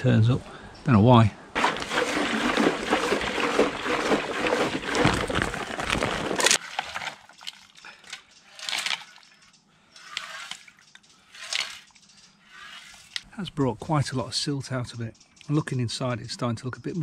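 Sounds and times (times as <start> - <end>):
short quiet splashes: 1.6 - 7.6
liquid pouring in heavy stream: 1.6 - 7.7.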